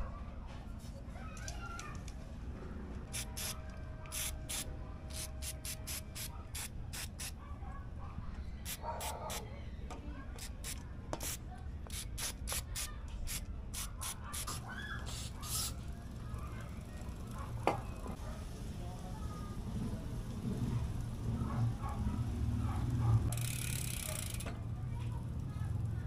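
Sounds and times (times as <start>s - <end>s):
cleaner spray bursts: 3.1s - 7.3s, 10.4s - 15.8s.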